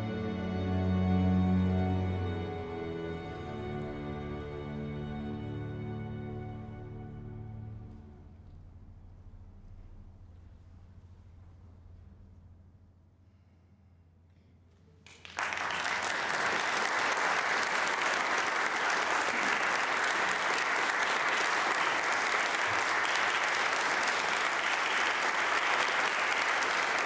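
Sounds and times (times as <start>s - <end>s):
audience applause: 15.1s - 27.0s.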